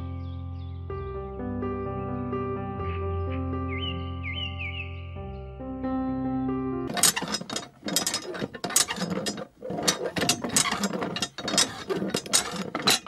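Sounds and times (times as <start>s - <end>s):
hand water pump clicking: 6.9s - 13.0s.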